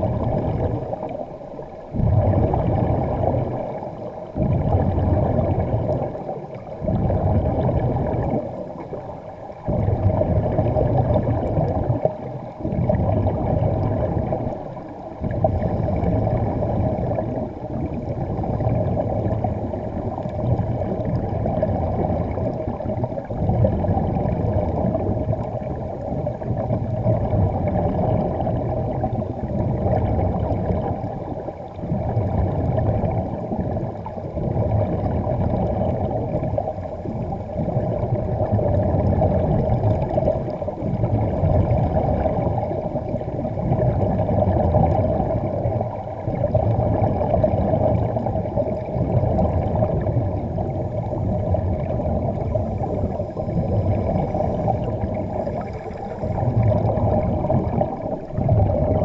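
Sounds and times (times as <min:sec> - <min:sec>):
underwater air bubbling: 0:00.0 - 0:59.0.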